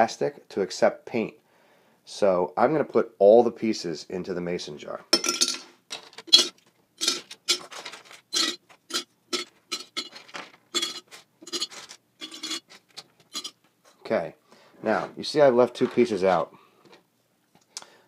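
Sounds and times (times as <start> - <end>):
plastic pieces clinking into glass jar: 5.2 - 13.6.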